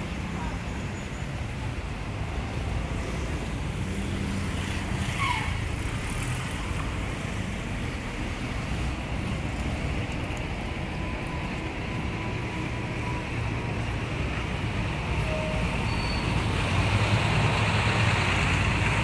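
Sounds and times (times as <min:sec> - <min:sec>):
cars passing on road: 0:00.0 - 0:19.0
brief high squeak: 0:15.3 - 0:16.5.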